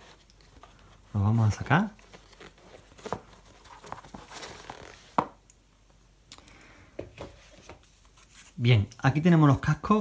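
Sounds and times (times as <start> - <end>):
cardboard rustling: 0.0 - 5.4.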